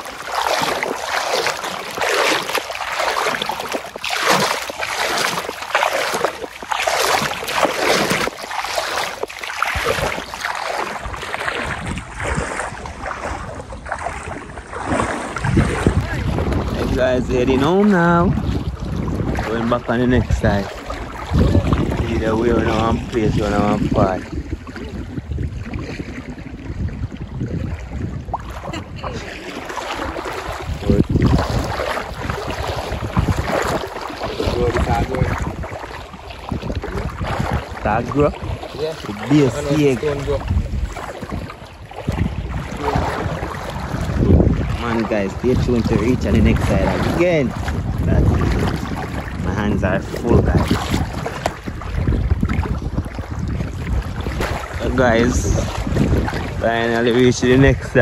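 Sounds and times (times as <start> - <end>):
water splashing and sloshing: 0.0 - 58.0
wind buffeting microphone: 0.0 - 58.0.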